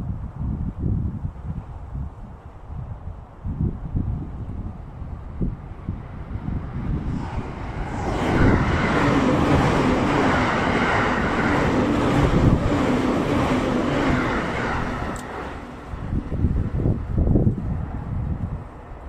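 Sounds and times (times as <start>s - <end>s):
electric train passing: 3.7s - 19.0s
wheel-on-rail noise: 5.9s - 19.0s.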